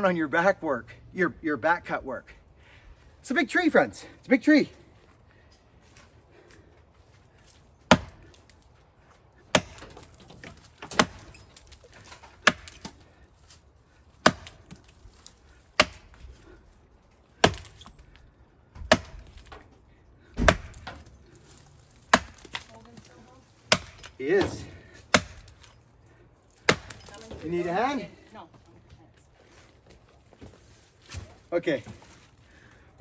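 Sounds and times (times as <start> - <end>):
axe chopping into wood: 7.9 - 8.4, 9.5 - 11.3, 11.9 - 13.0, 14.2 - 14.9, 15.8 - 16.2, 17.4 - 17.9, 18.7 - 19.7, 20.3 - 21.1, 22.0 - 23.1, 23.7 - 25.7, 26.6 - 27.5.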